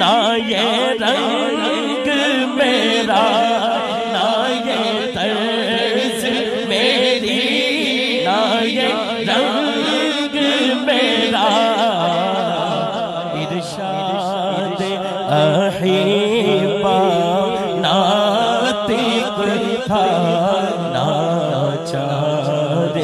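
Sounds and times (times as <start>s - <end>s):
man singing into a microphone: 0.0s - 23.0s.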